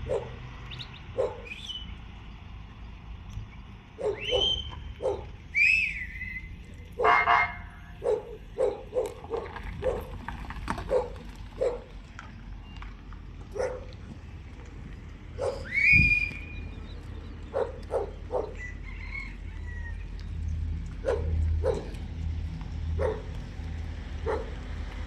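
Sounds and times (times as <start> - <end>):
dog barking: 0.0 - 0.4, 1.2 - 1.5, 4.0 - 5.3, 7.0 - 10.1, 10.9 - 11.9, 13.5 - 13.9, 15.4 - 15.7, 17.5 - 18.6, 21.0 - 22.0, 23.0 - 23.3, 24.2 - 24.6.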